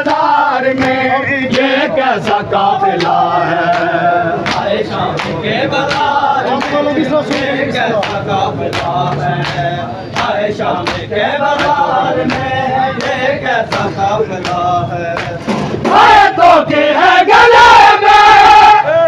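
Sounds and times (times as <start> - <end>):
men chanting a lament in unison: 0.0 - 19.0
hand slaps on bare chests: 3.0 - 9.6.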